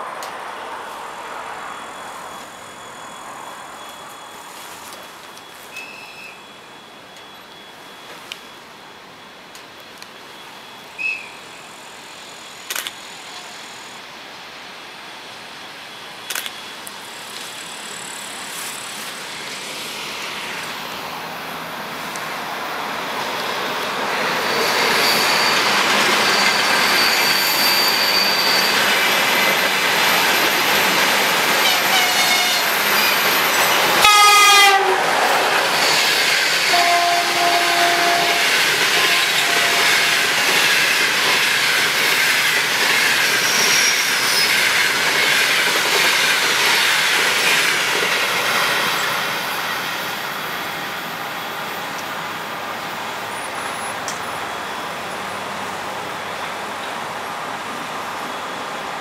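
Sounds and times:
train wheel and rail noise: 0.0 - 59.0
train horn blast: 31.6 - 32.7, 34.0 - 35.1, 36.7 - 40.1.

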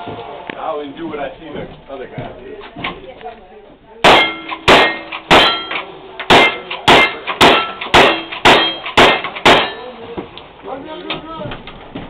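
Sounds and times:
rifle shots: 4.0 - 9.8
steel plate target clanging: 4.0 - 10.0.

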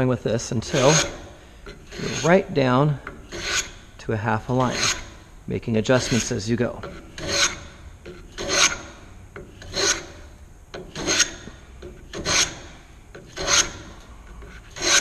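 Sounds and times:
hand plane shaving wood: 0.5 - 2.5, 4.6 - 5.0, 5.9 - 6.4, 7.2 - 7.6, 8.4 - 8.8, 9.6 - 10.0, 12.1 - 12.6, 13.2 - 13.9, 14.6 - 15.0.

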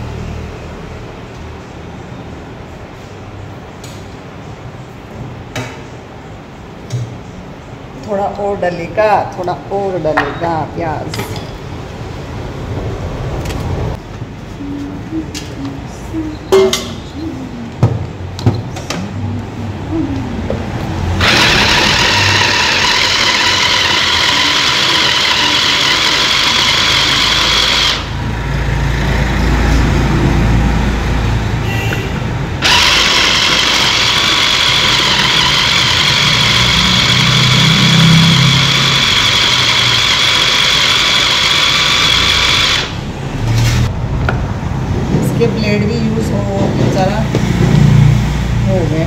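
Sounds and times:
mixer grinder whining: 21.1 - 29.2, 32.6 - 43.1.

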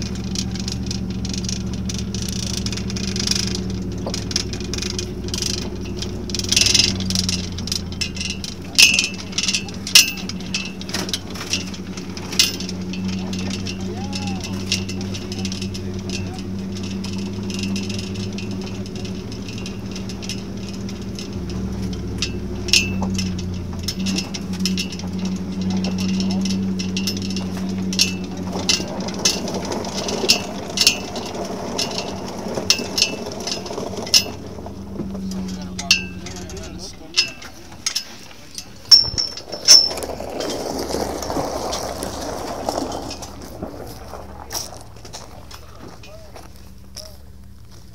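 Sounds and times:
rattling and clicking: 0.0 - 47.9
sharp metallic clinks: 0.0 - 47.9
vehicle engine running: 0.0 - 47.9
footsteps on gravel: 23.1 - 47.9.

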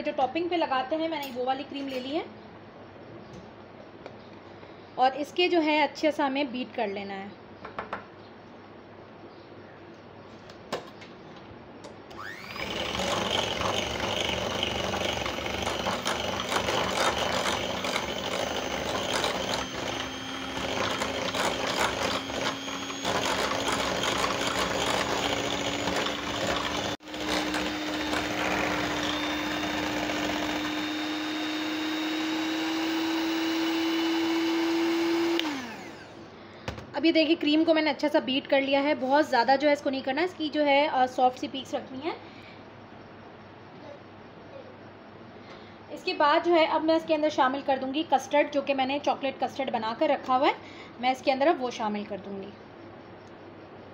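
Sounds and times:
electric hand mixer whipping cream: 12.1 - 36.2.

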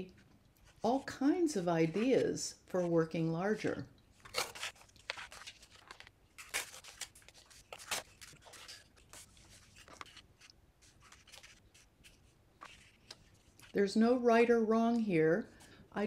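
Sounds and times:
page turning: 4.2 - 13.7
paper rustling and crinkling: 4.2 - 13.8.

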